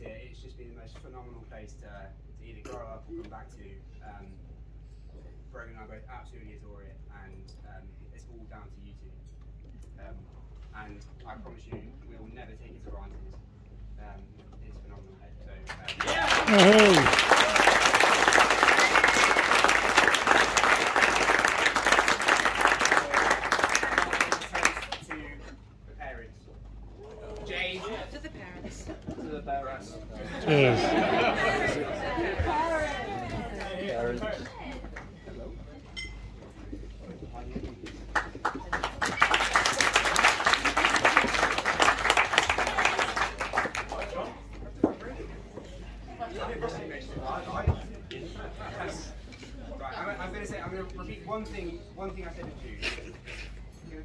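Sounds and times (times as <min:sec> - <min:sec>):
crowd applauding: 0:15.7 - 0:25.4, 0:30.4 - 0:35.1, 0:38.1 - 0:44.3.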